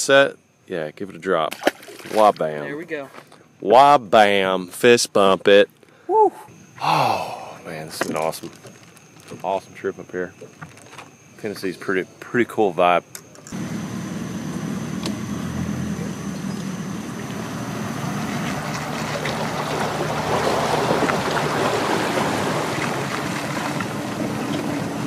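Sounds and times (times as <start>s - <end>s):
engine hum: 13.3s - 25.0s
water rushing off a hull: 18.0s - 25.0s.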